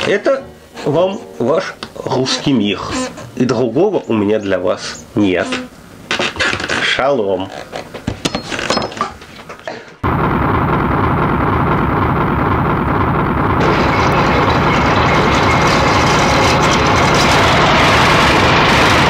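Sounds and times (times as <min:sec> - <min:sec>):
loud steady rumbling noise: 0:10.0 - 0:19.0.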